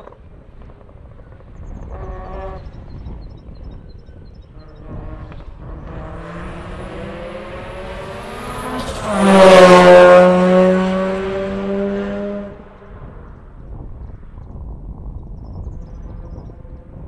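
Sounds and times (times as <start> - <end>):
rally car passing at high revs: 0.5 - 2.9, 4.5 - 13.6.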